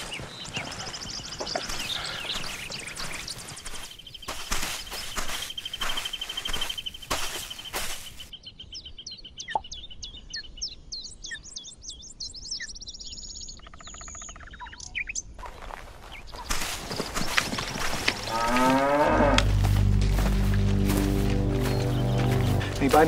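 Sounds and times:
footsteps rustling through undergrowth: 0:00.0 - 0:08.3, 0:15.4 - 0:23.0
songbirds chirping: 0:00.0 - 0:23.0.

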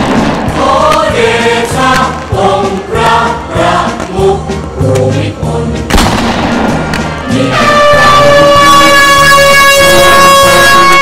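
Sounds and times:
fireworks banging and crackling: 0:00.0 - 0:03.0
choir singing: 0:00.0 - 0:05.9, 0:07.0 - 0:11.0.

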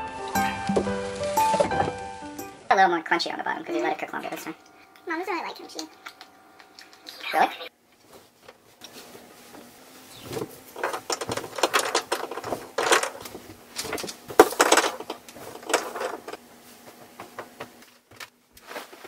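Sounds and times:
faint steady hum: 0:00.4 - 0:19.0
blankets flapping and rustling: 0:18.4 - 0:19.0.

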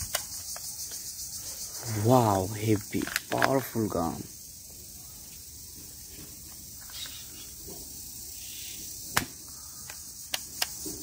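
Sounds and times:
toy pistol clicks: 0:00.0 - 0:01.0, 0:09.2 - 0:10.8.

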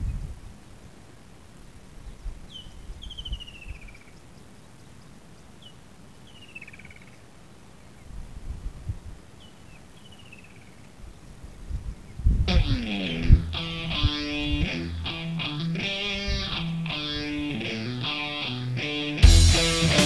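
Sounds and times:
wind rumble on microphone: 0:00.0 - 0:00.7, 0:08.0 - 0:09.3, 0:11.0 - 0:14.8
bird calling with falling trill: 0:02.0 - 0:07.2, 0:12.5 - 0:19.2.

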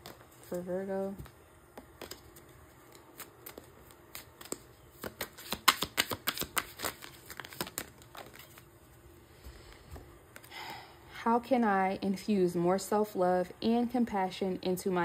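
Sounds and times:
cards being shuffled: 0:00.0 - 0:09.0.

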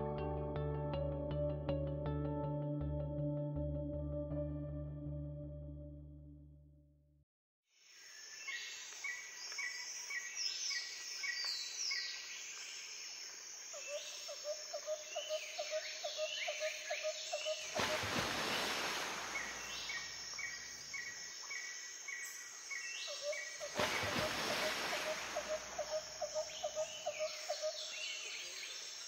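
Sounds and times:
rapid pulsed bird calls: 0:13.8 - 0:29.0
birds chirping: 0:15.1 - 0:29.0.

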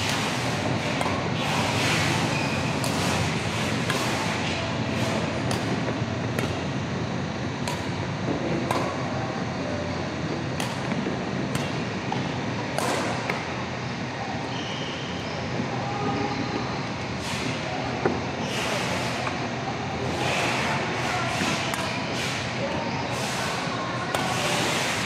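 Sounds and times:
badminton rackets hitting shuttlecock: 0:00.8 - 0:01.2, 0:05.4 - 0:05.8, 0:06.4 - 0:06.6, 0:07.6 - 0:07.9, 0:12.8 - 0:13.4.

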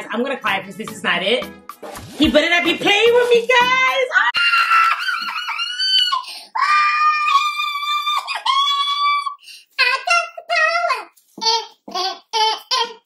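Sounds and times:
woman speaking: 0:00.0 - 0:01.5, 0:02.2 - 0:04.4
woman screaming with excitement: 0:04.2 - 0:09.3.

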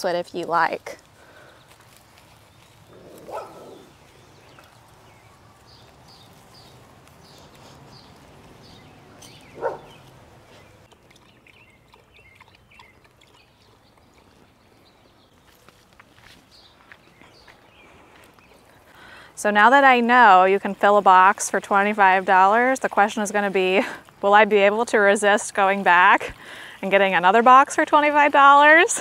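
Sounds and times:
bird chirps: 0:02.4 - 0:15.6
dog lapping water: 0:10.6 - 0:14.4.

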